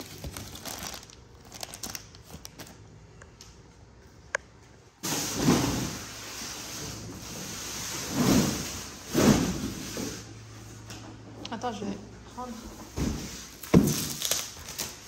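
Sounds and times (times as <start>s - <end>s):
plastic packaging rustling: 0.0s - 3.0s, 13.0s - 15.0s.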